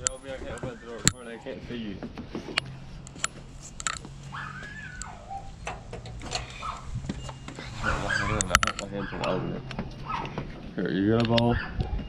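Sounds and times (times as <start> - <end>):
animal whine: 4.2 - 5.6, 6.2 - 10.5.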